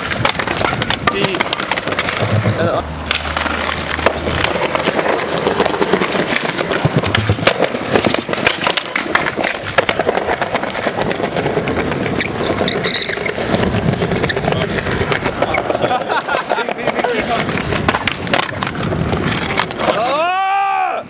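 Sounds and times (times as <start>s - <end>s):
skateboard clicks and knocks: 0.0s - 20.5s
skateboard wheels rolling on pavement: 0.0s - 21.0s.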